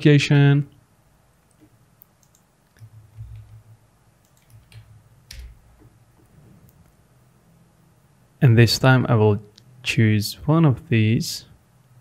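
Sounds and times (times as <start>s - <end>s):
keyboard and mouse clicks: 1.5s - 3.6s, 4.2s - 6.9s.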